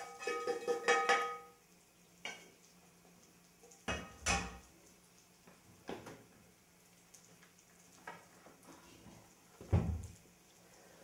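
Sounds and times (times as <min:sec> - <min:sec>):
metal utensil scraping frying pan: 0:00.0 - 0:01.5.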